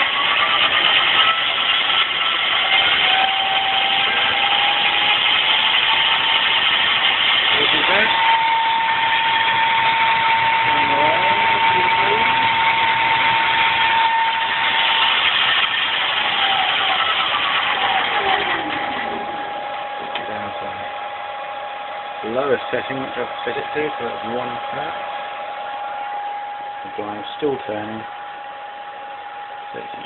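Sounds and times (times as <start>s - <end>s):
lathe running with whine: 0.0s - 30.0s
tone gliding down: 7.5s - 30.0s.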